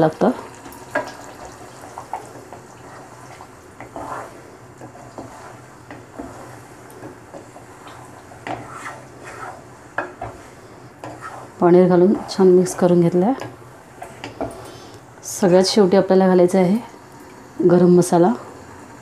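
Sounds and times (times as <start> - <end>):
spatula scraping pot: 0.9 - 14.7.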